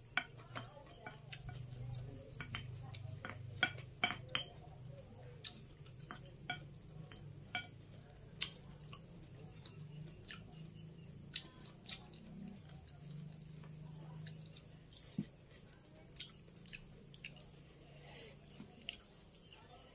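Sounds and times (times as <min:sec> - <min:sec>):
cutlery clinking on a plate: 0:02.3 - 0:04.6, 0:06.0 - 0:07.8.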